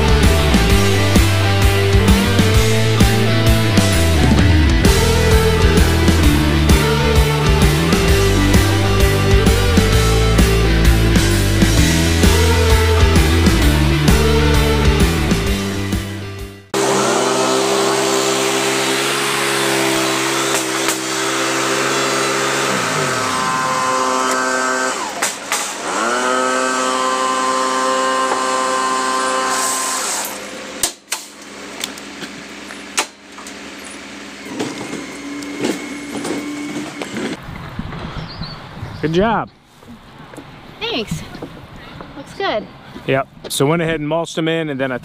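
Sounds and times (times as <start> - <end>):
small gasoline engine running: 0.0 - 15.8, 16.7 - 30.8, 31.5 - 37.4.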